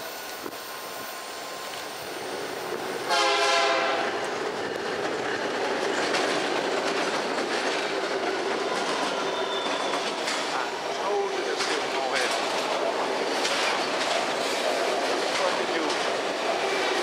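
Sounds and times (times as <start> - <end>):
train wheels clacking on rails: 2.7 - 17.0
locomotive horn blast: 3.1 - 4.2.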